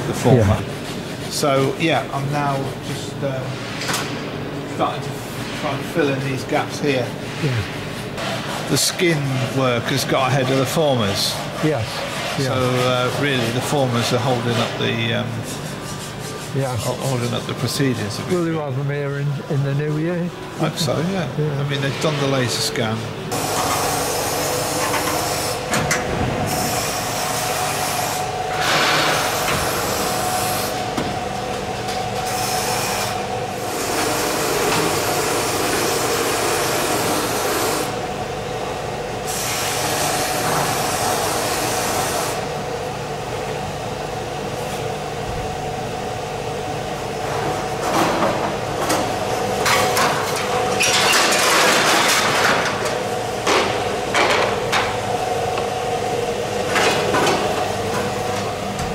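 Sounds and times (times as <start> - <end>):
mechanical hum: 0.0 - 58.9.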